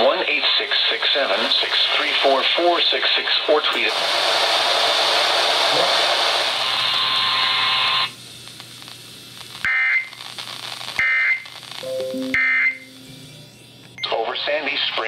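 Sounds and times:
radio static hiss: 0.0s - 12.0s, 12.7s - 15.0s
shrill data bursts: 11.0s - 14.1s.

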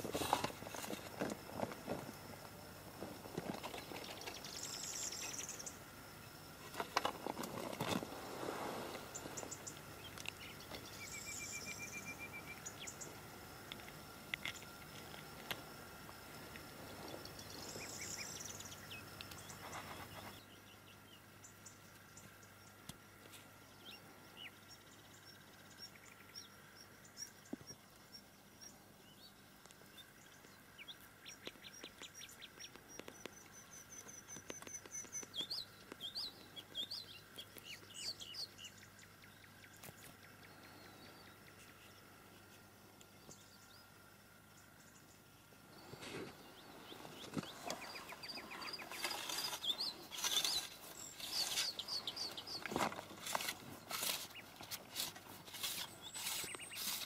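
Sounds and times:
faint birds chirping: 0.0s - 57.0s
handling rustle: 45.8s - 57.0s.

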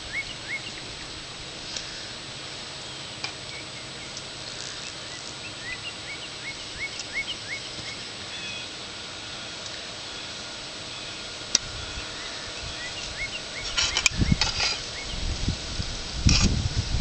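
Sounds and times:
bird chirping: 0.0s - 1.1s, 2.8s - 8.8s, 9.4s - 15.3s
steady low noise: 0.0s - 17.0s.

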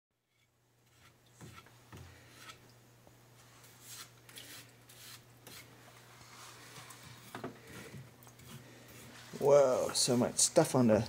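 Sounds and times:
hand tool scraping deposits: 6.6s - 10.2s.

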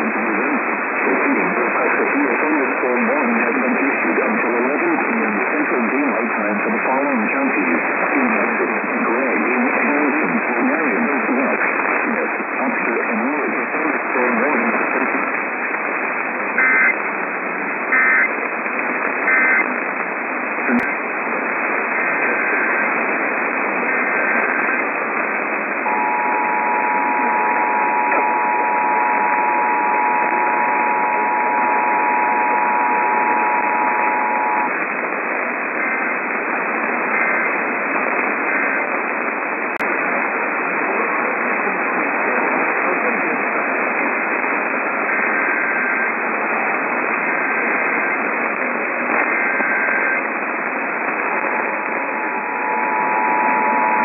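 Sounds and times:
radio static: 0.0s - 54.0s
two-tone attention signal: 25.8s - 34.7s
data bursts: 25.8s - 34.9s, 49.2s - 54.0s.

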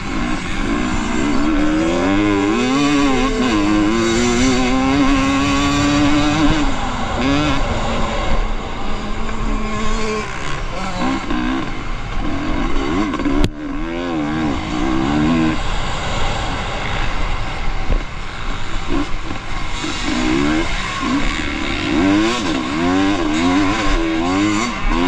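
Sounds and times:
motorcycle engines revving: 0.0s - 25.0s.

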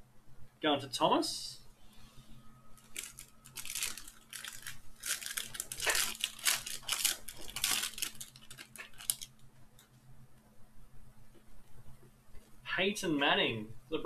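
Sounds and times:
foil wrapper crinkling and tearing: 2.8s - 9.4s.

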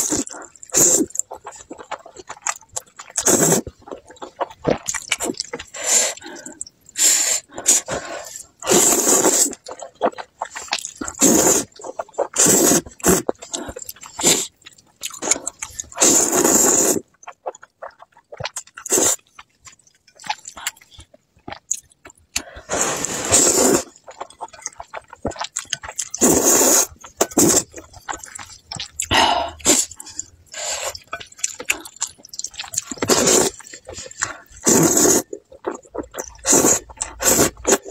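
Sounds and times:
loud noodle slurping: 0.0s - 2.4s, 3.1s - 3.7s, 7.0s - 9.8s, 10.5s - 14.5s, 15.2s - 17.0s, 18.8s - 19.2s, 22.6s - 24.2s, 26.0s - 37.9s
wet chewing and smacking: 0.0s - 37.9s.

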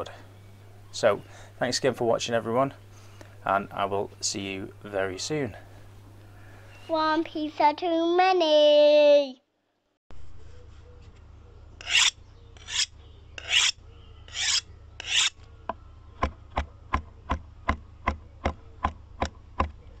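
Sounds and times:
rasping scrapes: 11.8s - 15.4s.

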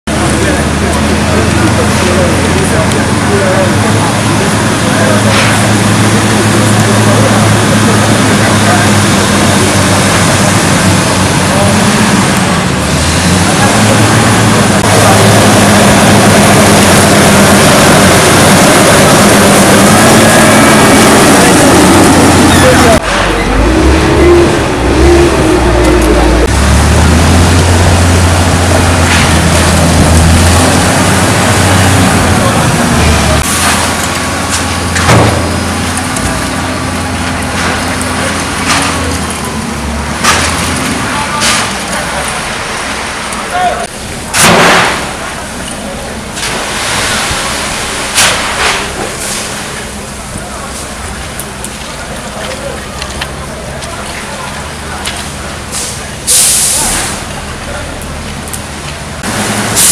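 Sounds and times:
background voices: 0.0s - 44.3s
diesel engine running under load: 0.0s - 59.9s.

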